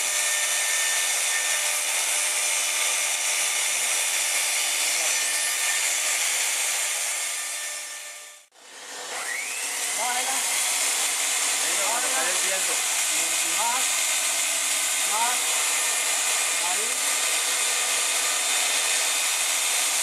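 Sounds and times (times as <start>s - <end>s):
hot-air blower hissing: 0.0s - 0.2s, 9.2s - 20.0s.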